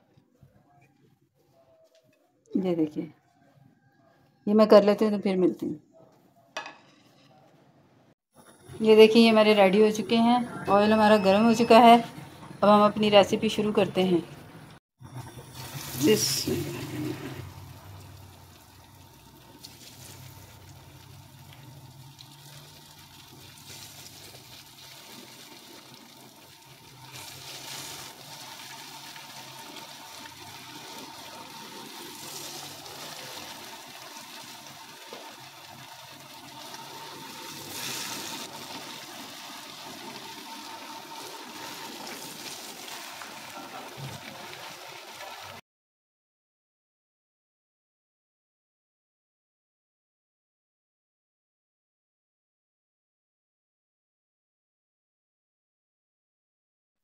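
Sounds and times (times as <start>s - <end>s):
fries sizzling in hot oil: 15.0s - 45.6s.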